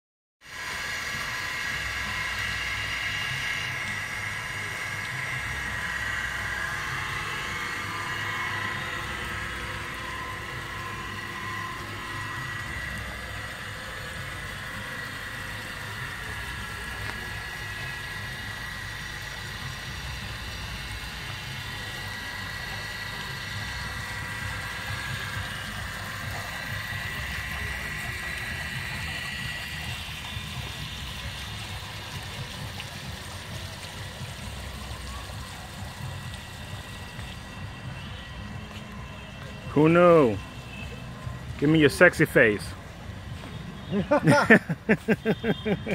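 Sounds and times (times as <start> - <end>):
mechanical hum with high whine: 0.4 - 45.9.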